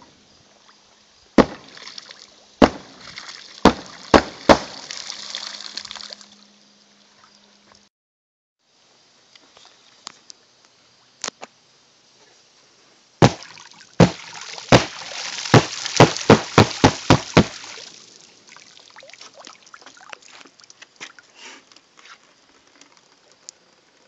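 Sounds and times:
pistol shots underwater: 1.4s - 1.8s, 2.6s - 4.9s, 13.2s - 17.6s
faint watery clicks: 17.8s - 24.0s.

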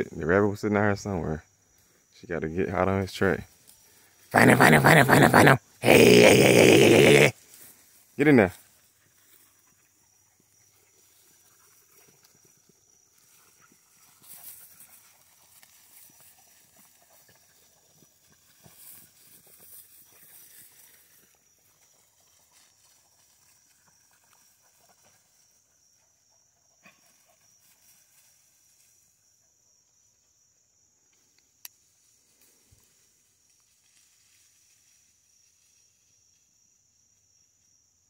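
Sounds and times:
high-pitched insect drone: 3.2s - 7.9s
rustling in dry grass: 7.4s - 25.4s, 31.8s - 36.4s.

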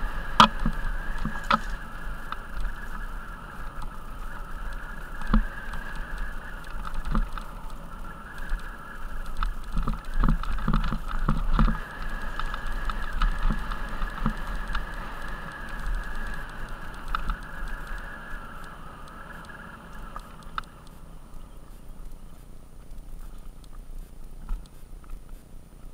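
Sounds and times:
bike tyres knocking on stones: 0.0s - 4.0s, 5.1s - 17.5s
wind rumble on microphone: 0.0s - 22.3s
mountain bike rattling: 0.0s - 24.6s.

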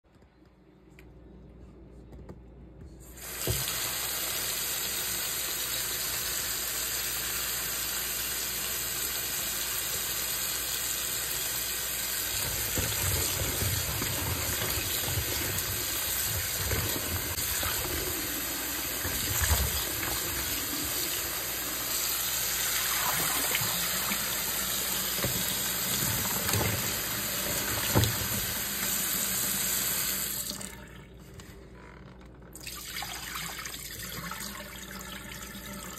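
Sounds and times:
tap water running into bowl: 10.7s - 30.7s
water sloshing as hands rinse potatoes: 11.2s - 30.8s.

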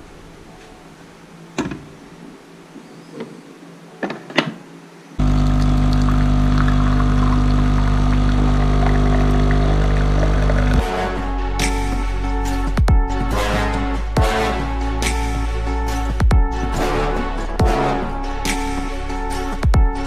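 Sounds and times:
coffee machine pump buzzing: 5.2s - 10.8s.

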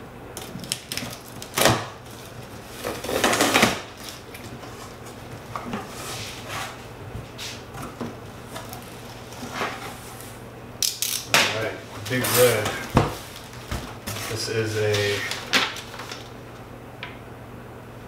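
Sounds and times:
packing tape tearing: 0.4s - 4.5s, 10.8s - 16.4s
cardboard scraping and rustling: 2.1s - 10.4s, 11.9s - 16.3s.

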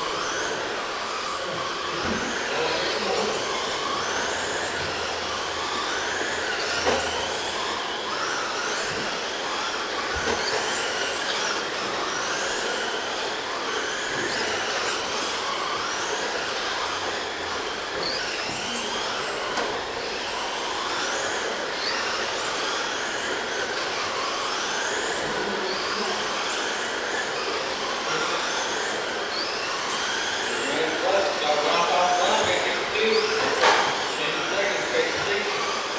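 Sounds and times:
rc car motors whining: 0.0s - 35.9s.

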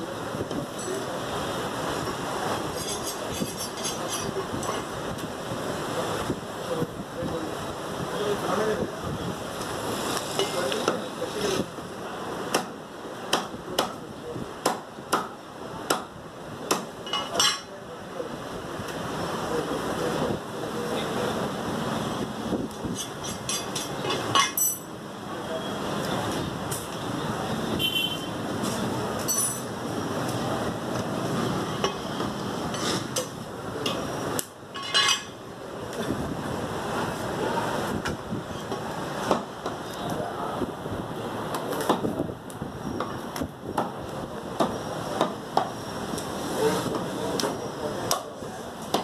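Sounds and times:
steady background noise: 0.0s - 49.0s
cleaver chopping meat on wood: 12.5s - 14.0s, 14.6s - 16.1s, 16.7s - 16.9s
knife and cleaver chopping wood block: 12.5s - 14.0s, 14.6s - 17.3s, 38.7s - 39.8s, 44.6s - 45.8s.

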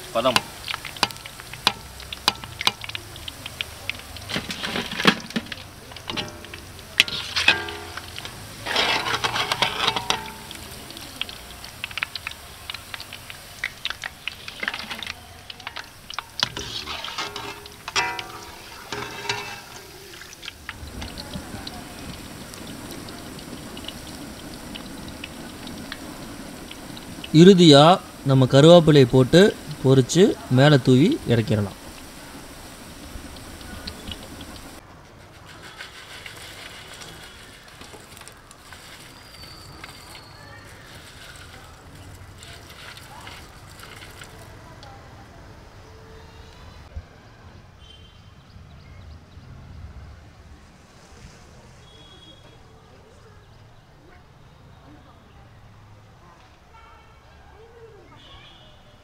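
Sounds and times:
hot oil crackling and popping: 0.0s - 45.3s
metal ladle clanking on pan: 0.3s - 3.6s, 4.2s - 12.3s, 13.8s - 21.2s
fried food tipped onto steel plate: 0.3s - 21.2s.

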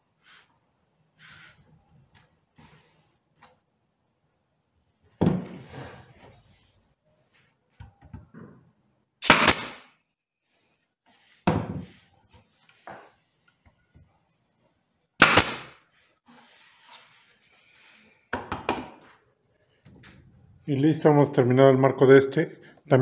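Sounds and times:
wood and tool knocking on workbench: 5.2s - 5.6s, 11.4s - 12.0s, 18.3s - 19.0s
nail gun firing: 9.2s - 9.9s, 15.2s - 15.8s.

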